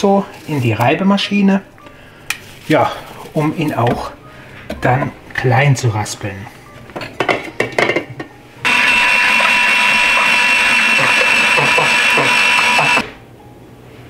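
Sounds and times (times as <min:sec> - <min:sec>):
electric grater motor whine: 0:08.6 - 0:13.1
apple being grated: 0:08.7 - 0:13.0.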